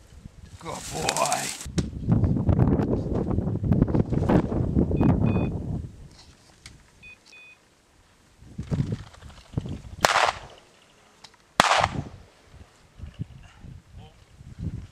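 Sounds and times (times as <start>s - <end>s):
shotgun shots echoing: 10.0s - 10.6s, 11.6s - 12.1s.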